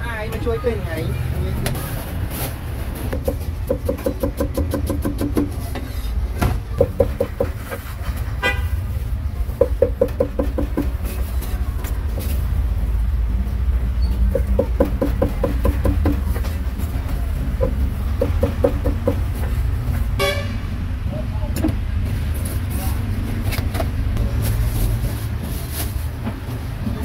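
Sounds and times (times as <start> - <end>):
traffic engine rumble: 0.0 - 27.0
car horn toot: 8.4 - 8.8, 20.2 - 20.7.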